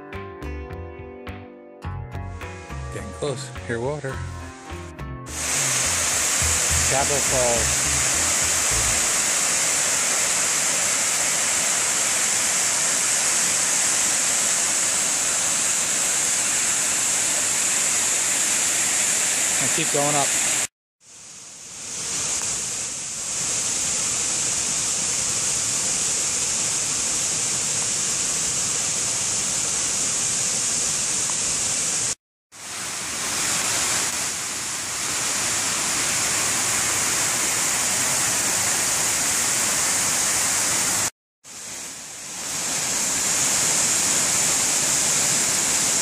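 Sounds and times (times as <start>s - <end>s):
waterfall rushing water: 5.3s - 20.7s, 21.8s - 46.0s.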